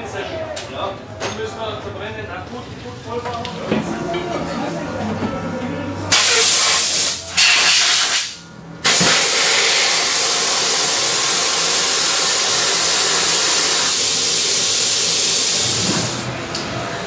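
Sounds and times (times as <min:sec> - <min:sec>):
compressed air hissing from hose: 0:06.1 - 0:16.3.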